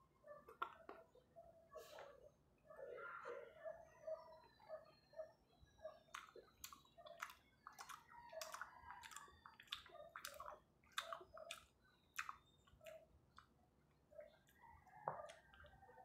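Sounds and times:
wet chewing with mouth clicks: 0.4 - 1.2, 6.0 - 16.0.

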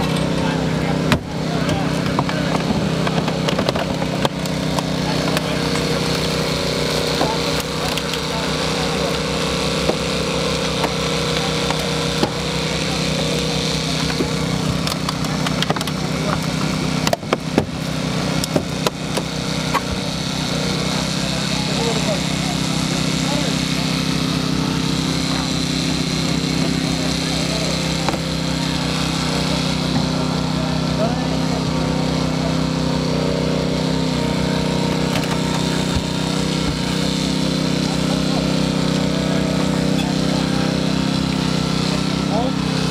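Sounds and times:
small engine running: 0.0 - 42.9
car metal and glass cracking: 13.9 - 20.0.

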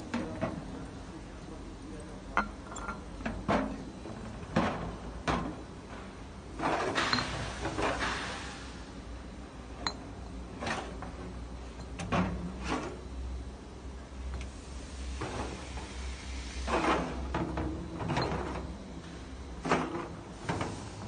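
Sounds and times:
glass bottles knocking together: 2.4 - 3.2.

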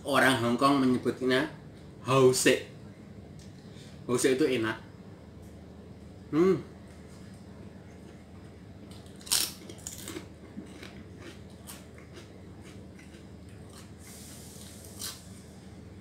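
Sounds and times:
crisp bites: 8.9 - 12.2
person chewing: 8.9 - 15.3.

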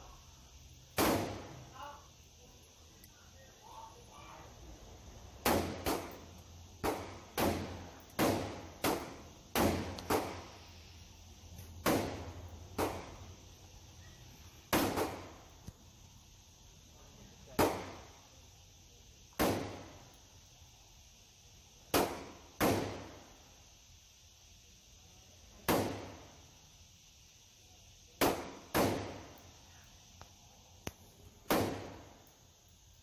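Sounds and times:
rifle shots echoing indoors: 1.0 - 1.7, 5.4 - 10.5, 11.8 - 13.3, 14.7 - 15.5, 19.3 - 20.1, 21.9 - 23.3, 28.2 - 29.4, 31.4 - 32.3.

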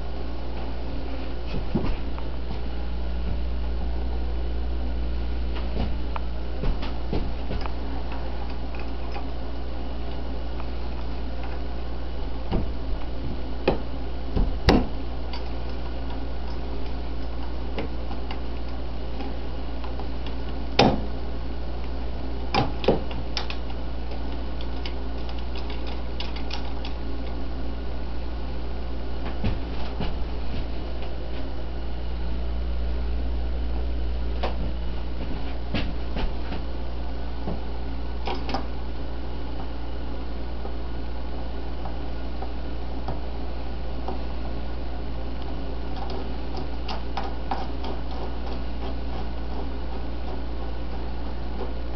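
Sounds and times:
low mechanical hum: 0.0 - 51.9
metal parts clicking and knocking: 22.5 - 27.4.

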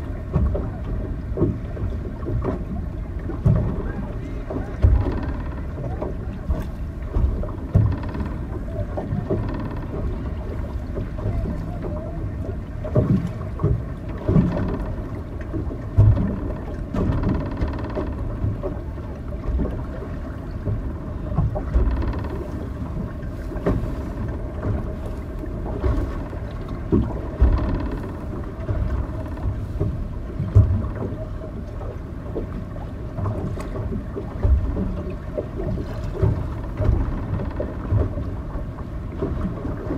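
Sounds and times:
wind on microphone: 0.0 - 39.9
low thumps: 3.4 - 18.8, 20.6 - 31.2.

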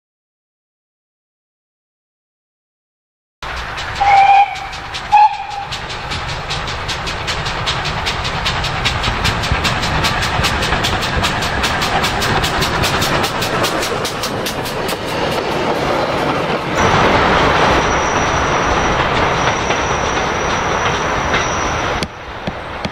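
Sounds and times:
freight train running: 3.4 - 22.9
rhythmic locomotive exhaust beats: 3.4 - 22.9
steam locomotive whistle blasts: 4.0 - 5.8.

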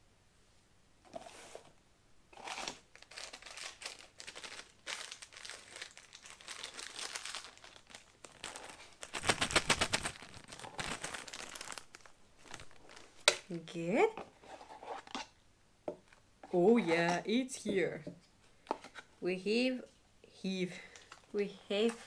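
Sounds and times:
packaging crinkling and rustling: 2.4 - 13.3.

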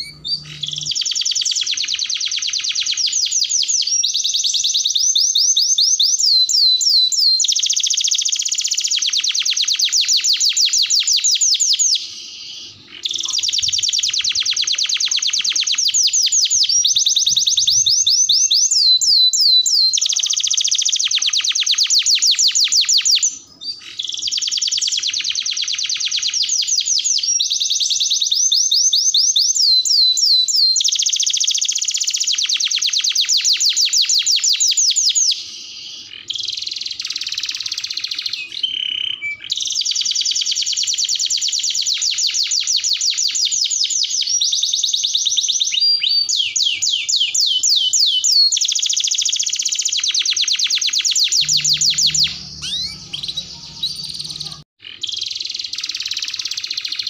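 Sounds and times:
canary singing trills: 0.0 - 57.0.

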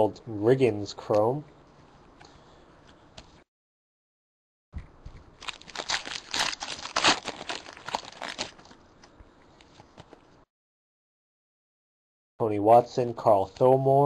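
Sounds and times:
foil wrapper crinkling: 5.3 - 8.8.

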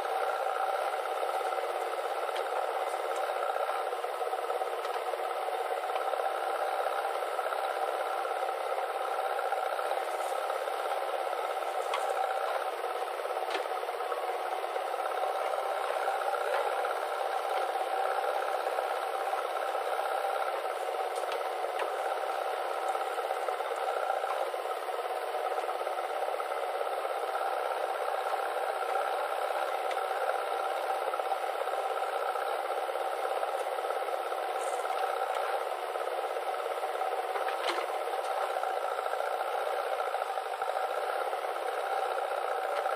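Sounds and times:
diesel engines running: 0.0 - 42.9.

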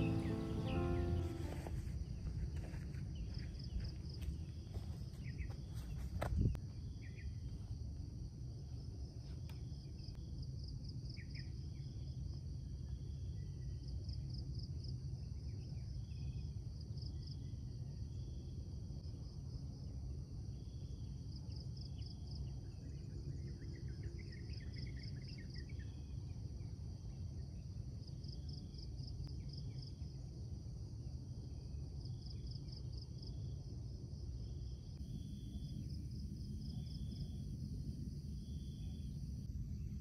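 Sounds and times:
low steady rumble: 0.0 - 1.9
insects chirping in pulsed trains: 0.0 - 40.0.

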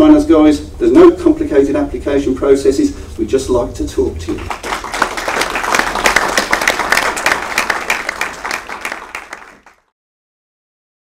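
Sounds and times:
audience applauding: 4.4 - 9.9.

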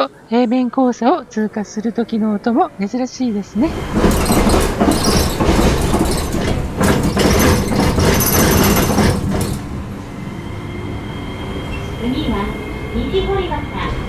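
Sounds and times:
tram running on track: 3.2 - 14.0
tram wheels clattering over crossing: 3.5 - 14.0.

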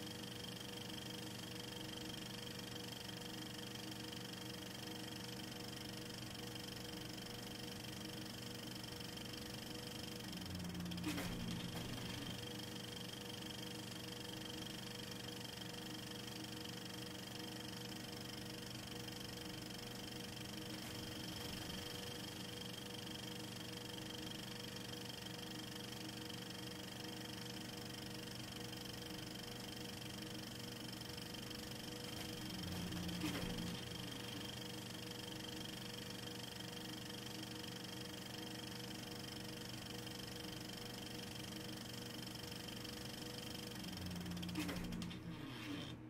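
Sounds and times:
electrical hum and whine: 0.0 - 46.0.

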